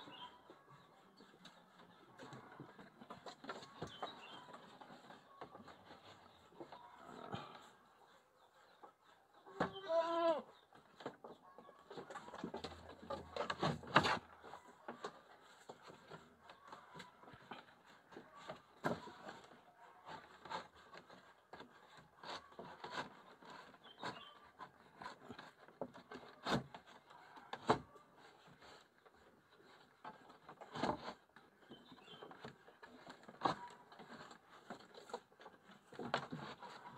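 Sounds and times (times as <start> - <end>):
goat bleating: 9.6 - 10.5.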